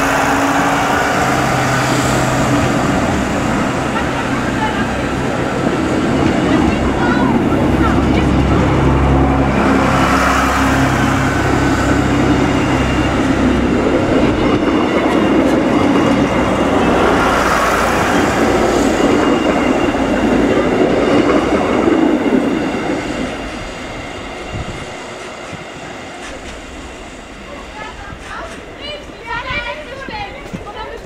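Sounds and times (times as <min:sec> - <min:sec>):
diesel engine drone: 0:00.0 - 0:21.2
train wheels running over rails: 0:00.0 - 0:31.0.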